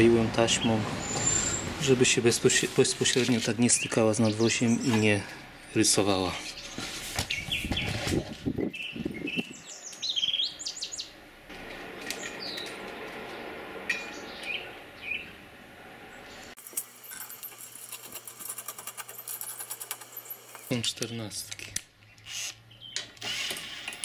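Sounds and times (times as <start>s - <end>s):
small birds chirping: 3.0s - 11.2s, 12.2s - 15.4s, 20.1s - 23.2s.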